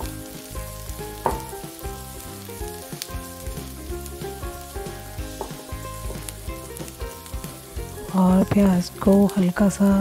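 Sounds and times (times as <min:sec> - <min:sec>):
onions sizzling in hot oil: 0:00.0 - 0:10.0
soft background music: 0:00.0 - 0:10.0.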